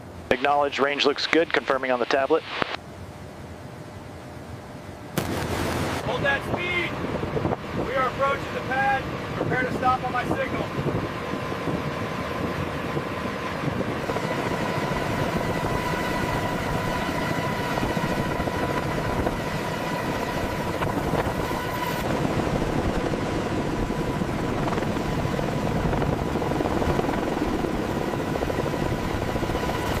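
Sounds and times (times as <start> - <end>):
high whine: 0.0 - 2.8
helicopter rotor and turbine: 0.0 - 30.0.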